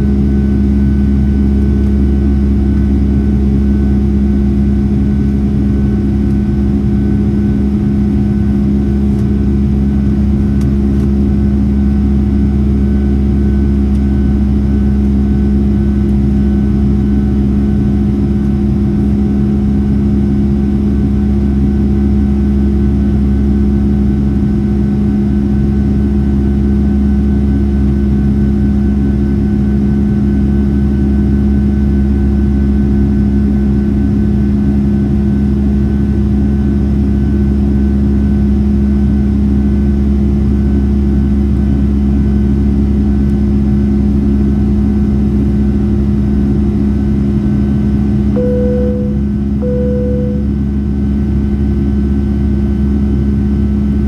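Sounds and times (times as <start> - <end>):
jet engine drone in cabin: 0.0 - 54.0
faint high whine: 48.4 - 50.6.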